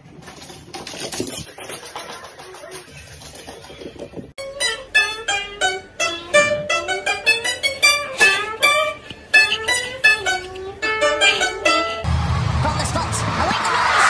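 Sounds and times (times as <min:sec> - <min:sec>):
plucked lute melody: 0:04.4 - 0:12.1.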